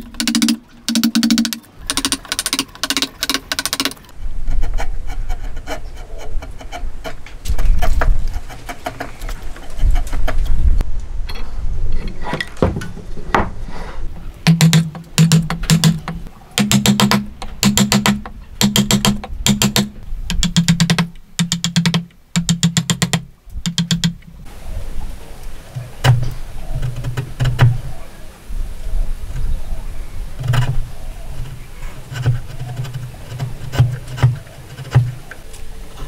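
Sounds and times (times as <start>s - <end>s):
hammer striking chisel into wood: 14.5s - 24.2s.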